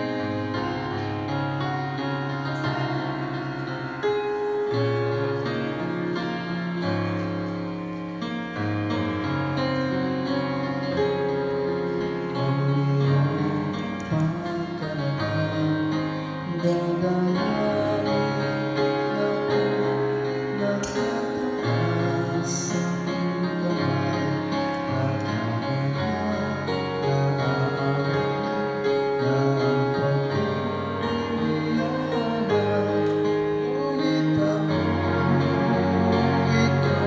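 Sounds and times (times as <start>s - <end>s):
slow gentle instrumental music: 0.0s - 37.0s.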